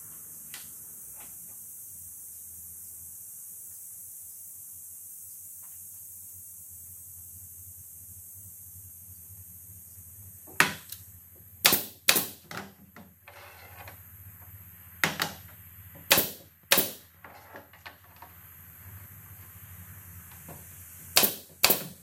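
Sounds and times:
low workshop hum: 0.0 - 22.0
wooden pieces knocking: 15.0 - 18.0.

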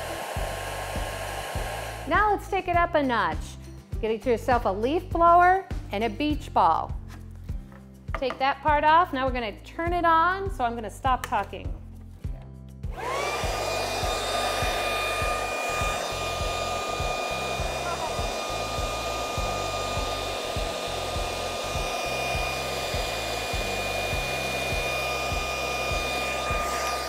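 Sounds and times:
electric leaf blower running: 0.0 - 2.2, 12.9 - 27.0.

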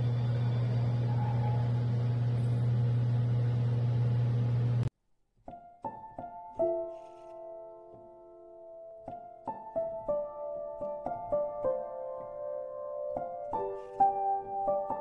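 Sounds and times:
low hum with hiss: 0.0 - 4.9
soft piano notes: 5.5 - 15.0.

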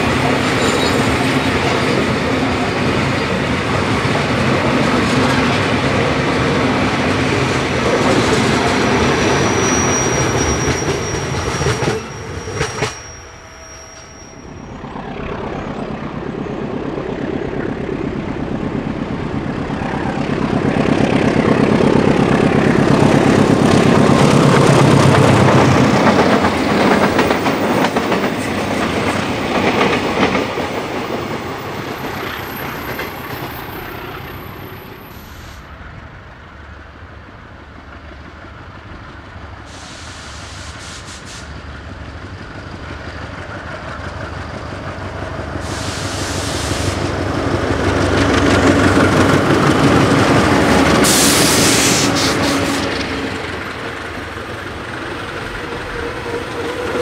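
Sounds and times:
diesel locomotive engine: 0.0 - 57.0
train wheels clacking over rail joints: 21.1 - 33.8.

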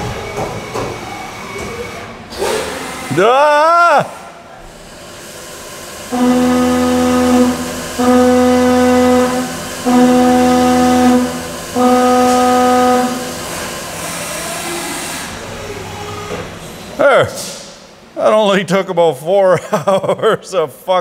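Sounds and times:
coolant hissing: 2.3 - 16.2
milling cutter steady tone: 6.1 - 13.5.

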